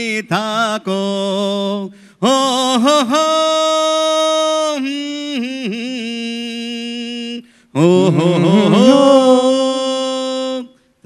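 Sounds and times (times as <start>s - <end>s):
men singing unaccompanied: 7.8s - 10.2s.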